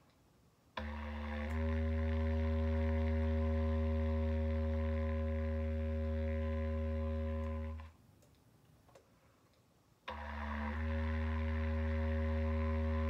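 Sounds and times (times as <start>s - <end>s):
bass clarinet long low note: 0.8s - 7.9s, 10.1s - 13.0s.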